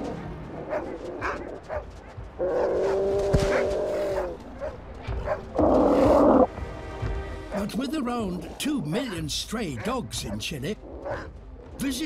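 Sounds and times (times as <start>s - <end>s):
sea lions calling: 5.3s - 6.5s.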